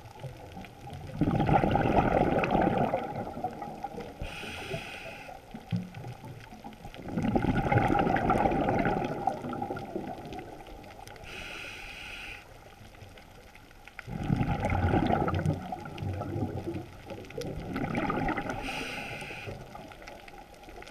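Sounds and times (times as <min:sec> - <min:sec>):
exhaled bubbles gurgling: 0:00.0 - 0:20.9
regulator inhale hiss: 0:04.2 - 0:05.4, 0:11.2 - 0:12.6, 0:18.6 - 0:19.8.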